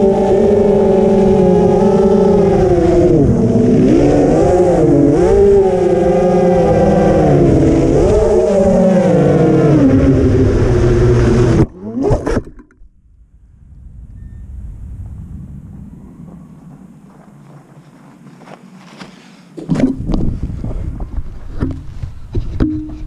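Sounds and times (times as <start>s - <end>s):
quadcopter motors whining: 0.0s - 12.4s.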